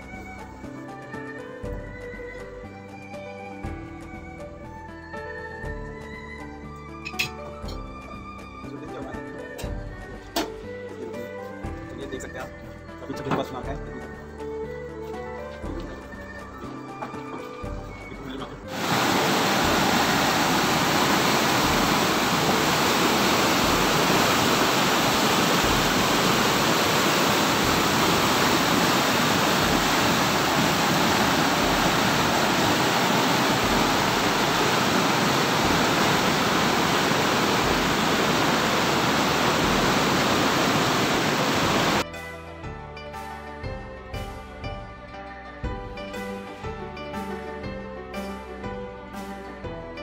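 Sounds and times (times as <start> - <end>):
flooded river rushing: 18.7 - 42.0.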